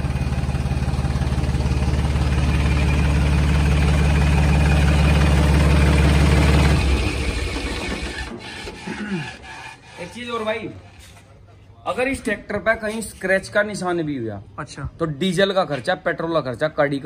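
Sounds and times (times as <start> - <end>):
tractor diesel engine idling: 0.0 - 8.8.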